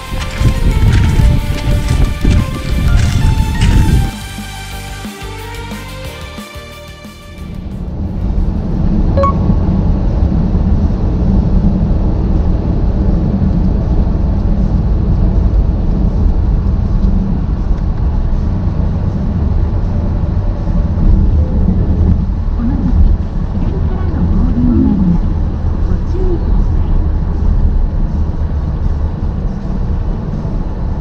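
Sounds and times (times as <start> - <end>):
vehicle engine and road noise: 0.0 - 5.1, 7.2 - 31.0
faint brief tone: 9.2 - 9.6.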